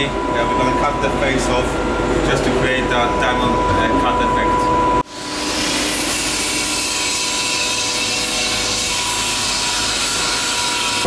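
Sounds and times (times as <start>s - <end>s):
lathe cutting metal wheel: 5.1s - 11.0s.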